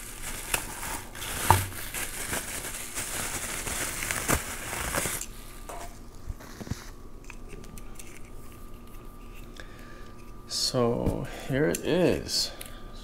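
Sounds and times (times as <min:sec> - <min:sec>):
bubble wrap bag crinkling: 0:00.0 - 0:05.5.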